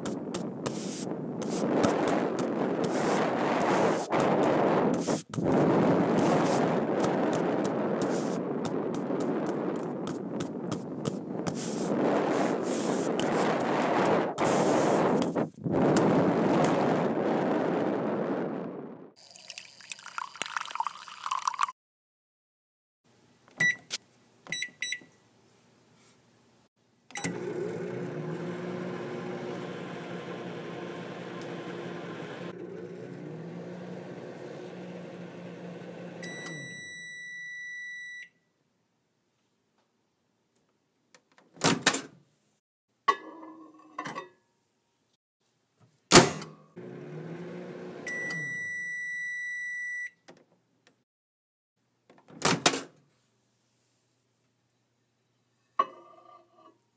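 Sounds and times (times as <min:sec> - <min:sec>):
microwave keypad beeps: 0:23.6 - 0:23.9, 0:24.5 - 0:25.1, 0:36.2 - 0:38.4, 0:48.1 - 0:50.2
microwave long beep: 0:23.6 - 0:23.9, 0:24.5 - 0:25.1, 0:27.1 - 0:27.6, 0:35.9 - 0:38.5, 0:47.6 - 0:50.2
microwave humming: 0:27.1 - 0:36.8, 0:46.8 - 0:48.8.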